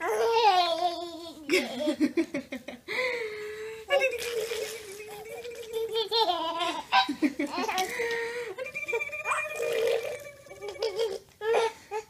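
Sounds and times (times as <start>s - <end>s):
baby laughing: 3.9s - 11.7s.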